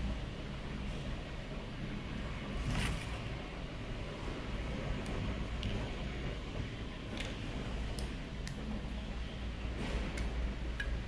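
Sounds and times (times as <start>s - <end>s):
low background hum: 0.0s - 11.0s.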